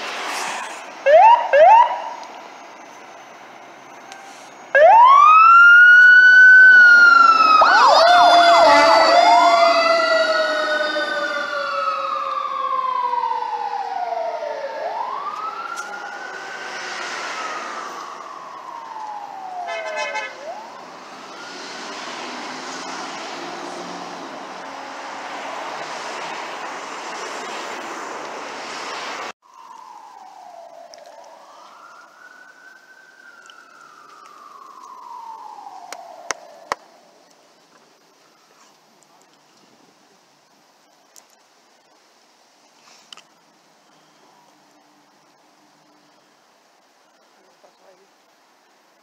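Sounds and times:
fire engine siren wailing: 0:01.0 - 0:02.3, 0:03.8 - 0:27.3, 0:29.4 - 0:37.1.

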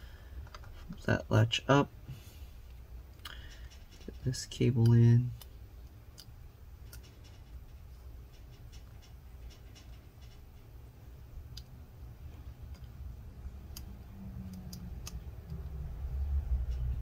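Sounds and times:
low steady hum: 0:00.0 - 0:17.0
small clicks and scratches of cable: 0:02.7 - 0:10.7.

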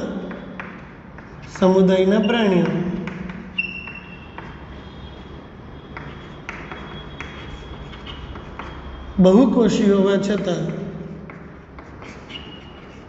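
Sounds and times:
chalk tapping on chalkboard: 0:00.0 - 0:13.0
high chalk squeak: 0:02.1 - 0:09.2, 0:11.3 - 0:13.0.

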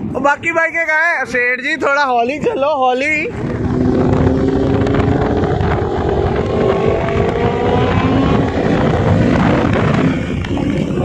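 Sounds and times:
wind rushing over microphone: 0:00.0 - 0:11.0
motorcycle engines accelerating: 0:03.0 - 0:11.0.

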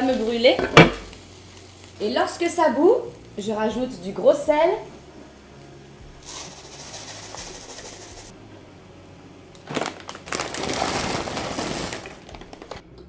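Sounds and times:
rustling: 0:09.6 - 0:12.8.

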